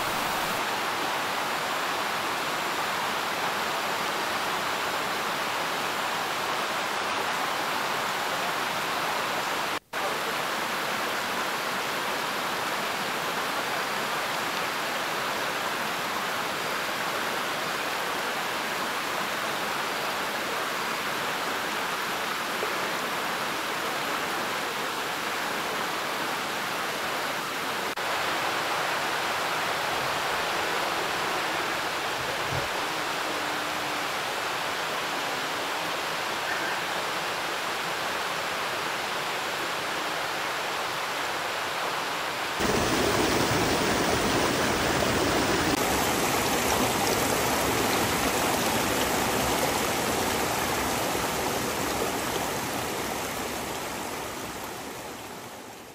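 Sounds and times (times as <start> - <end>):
waterfall rushing: 0.0 - 16.7, 27.9 - 55.9.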